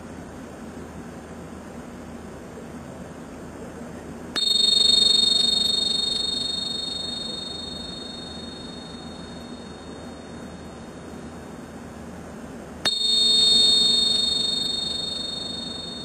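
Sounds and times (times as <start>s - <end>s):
hand cymbals ringing: 4.4s - 10.6s, 12.9s - 16.0s.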